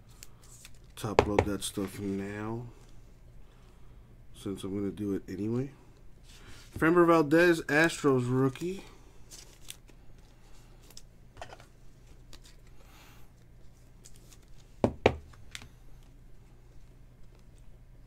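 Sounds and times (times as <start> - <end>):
trading cards rustling: 7.8 - 12.8.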